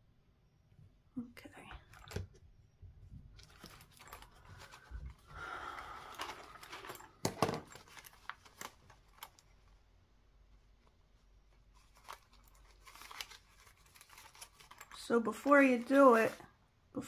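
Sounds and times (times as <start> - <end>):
paper rustling: 3.4 - 16.6.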